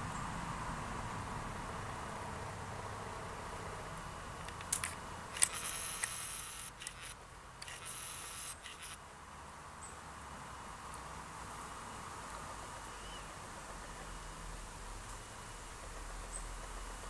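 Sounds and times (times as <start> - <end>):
bird scratching wood: 4.4 - 9.0
sharp clicks: 4.4 - 9.0.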